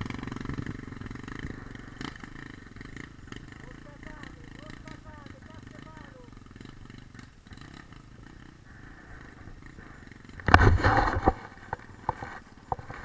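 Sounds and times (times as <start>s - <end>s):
motorcycle engine idling and revving: 0.0s - 13.0s.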